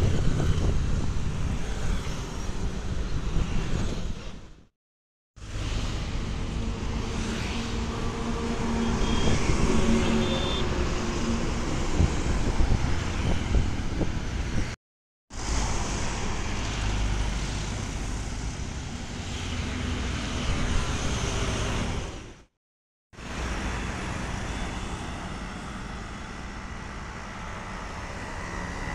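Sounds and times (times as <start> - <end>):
highway traffic passing: 0.0 - 4.6, 5.4 - 22.5, 23.2 - 28.9.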